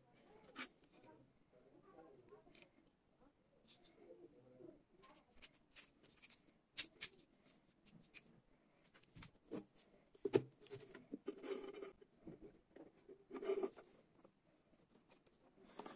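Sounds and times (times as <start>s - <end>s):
small clicks taps and scrapes: 5.0s - 7.2s, 7.8s - 8.3s.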